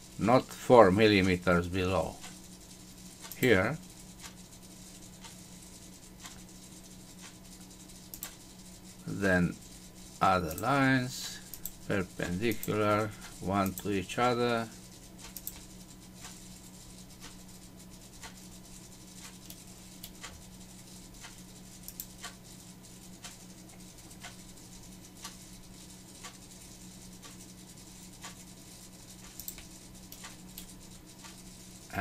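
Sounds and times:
low electrical hum: 0.0 - 32.0
faint computer mouse clicks: 21.2 - 22.4, 29.3 - 31.4.

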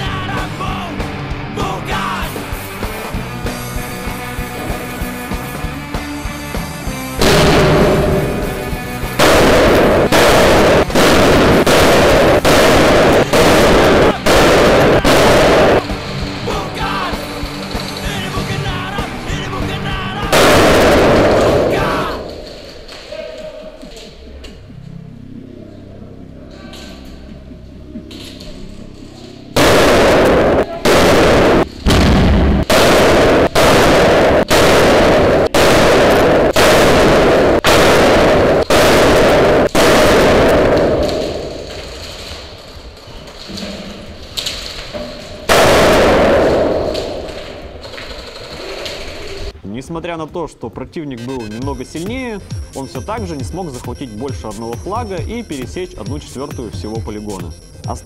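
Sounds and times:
grenade blasts: 7.2 - 23.1, 29.6 - 49.6.

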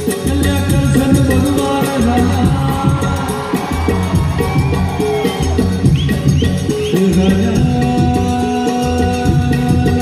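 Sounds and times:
man singing: 0.0 - 4.1, 6.6 - 10.0
hand drum: 0.0 - 10.0.

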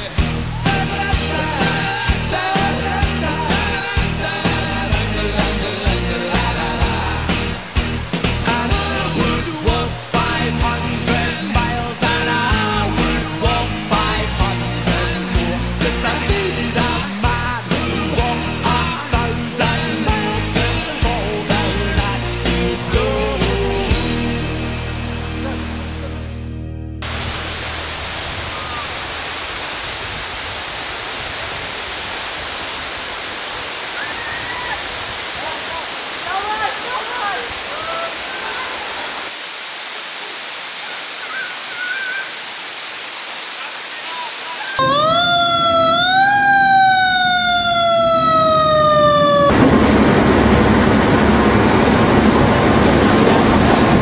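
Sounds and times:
waterfall rushing: 0.0 - 26.2, 27.0 - 54.0
background music: 0.0 - 27.2
fast boat rushing through water: 27.0 - 44.8, 49.0 - 54.0
fire engine siren wailing: 44.8 - 54.0.

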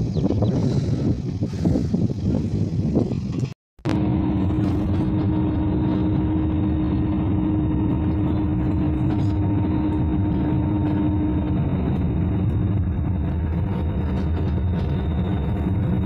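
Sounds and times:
car engine and road noise: 0.0 - 16.0.

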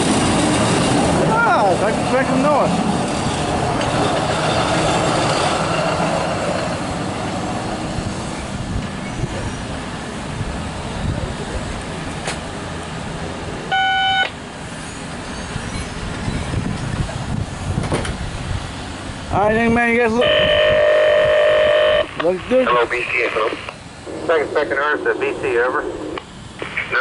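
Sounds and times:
truck wheels rolling on rails: 0.0 - 13.7, 14.3 - 19.4
short steady beep: 13.7 - 14.3.

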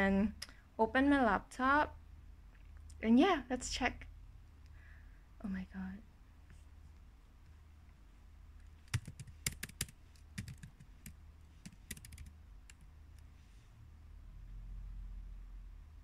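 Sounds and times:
typing on laptop keyboard: 8.9 - 12.9.

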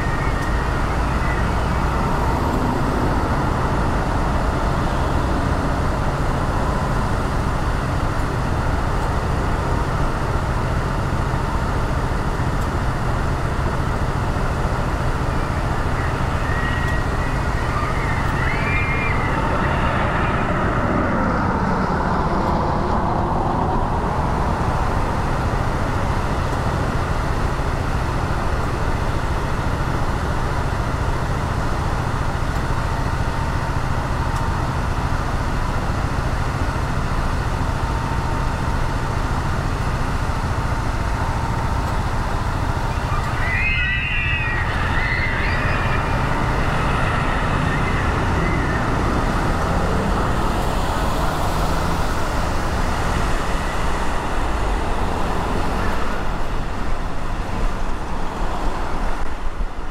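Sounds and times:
car engine and tyre noise: 0.0 - 59.9
surrounding traffic: 0.0 - 59.9
vehicle passing by: 14.2 - 25.3, 44.5 - 59.2.

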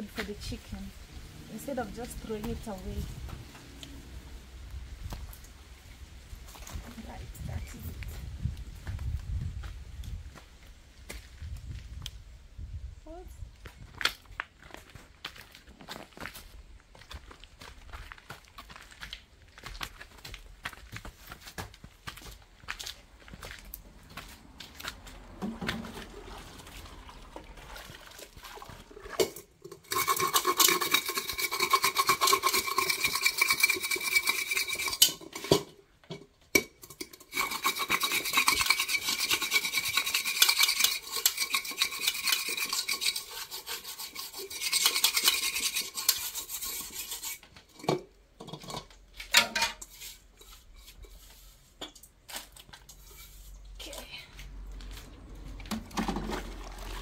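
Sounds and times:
spoon scraping a cooking pot: 29.0 - 35.6, 36.6 - 51.6, 52.9 - 53.6.

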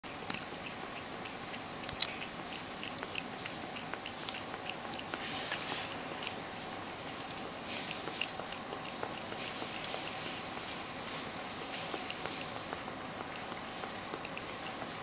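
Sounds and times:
cat lapping milk: 0.0 - 15.0.

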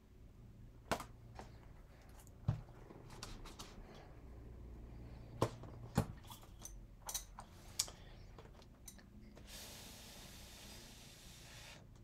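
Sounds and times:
breath blowing hiss: 9.4 - 11.9.

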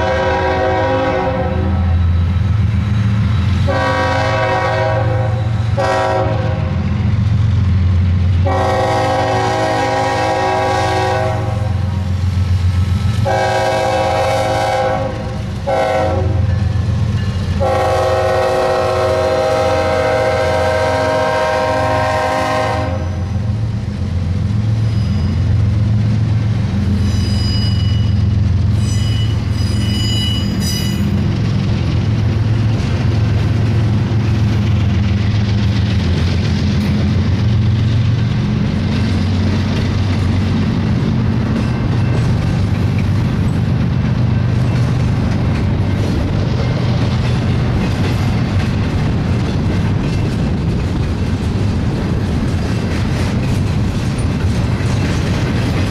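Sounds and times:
train air horn chord: 0.0 - 1.9, 3.7 - 6.8, 8.4 - 11.8, 13.2 - 16.5, 17.6 - 23.3
locomotive rumble: 0.0 - 55.9
train wheels squealing: 1.9 - 3.7, 24.6 - 25.9, 26.8 - 31.4.

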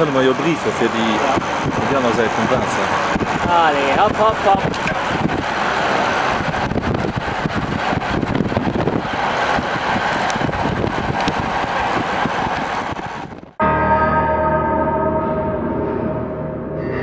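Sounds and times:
car road and wind noise: 0.0 - 13.6
ringing bell-like tone: 13.6 - 17.0.

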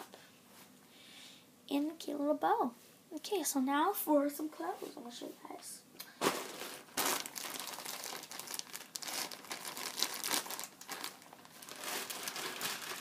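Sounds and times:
packaging crinkling and rustling: 6.2 - 13.0.

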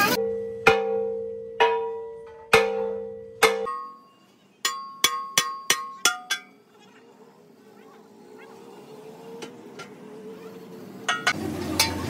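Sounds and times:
hammer striking steel rim: 0.2 - 6.7, 11.0 - 12.0.

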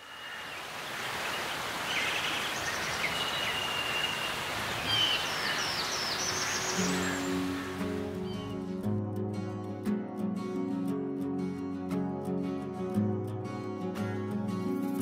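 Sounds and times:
steady background hiss: 0.0 - 8.0
birds chirping: 0.0 - 8.8.

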